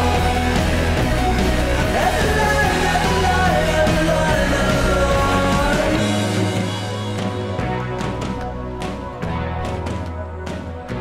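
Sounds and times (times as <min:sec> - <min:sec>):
song with sung vocal: 0:00.0 - 0:07.6
low bass line: 0:00.0 - 0:11.0.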